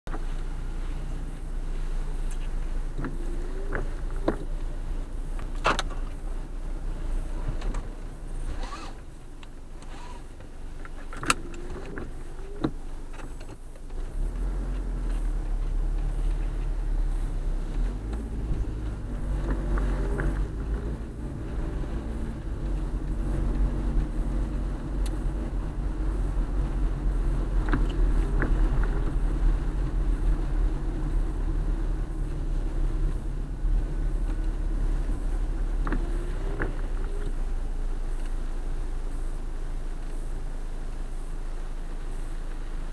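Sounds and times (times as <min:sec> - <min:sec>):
car driving on wet road: 0:00.1 - 0:42.9
short squeaks: 0:08.4 - 0:09.0, 0:09.9 - 0:10.4.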